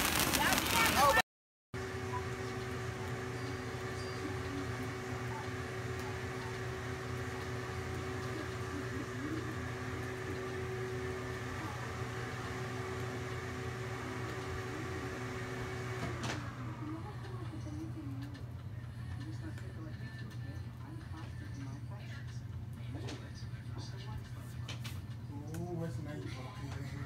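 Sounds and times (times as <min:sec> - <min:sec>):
steady hum with held tone: 0:01.8 - 0:22.8.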